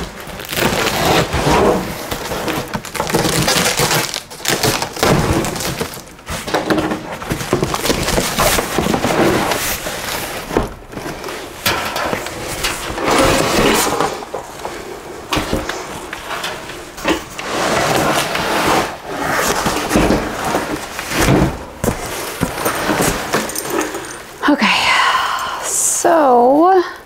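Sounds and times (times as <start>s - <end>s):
cardboard knocks and cracks: 0.0s - 11.0s, 19.6s - 23.4s
packaging rustling and crinkling: 0.0s - 24.4s.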